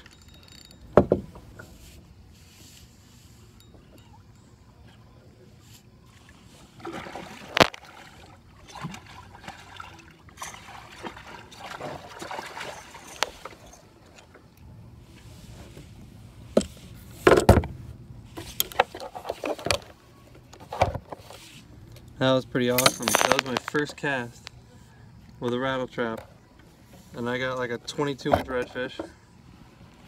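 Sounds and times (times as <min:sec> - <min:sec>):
water splashing and dripping: 0:06.1 - 0:14.6.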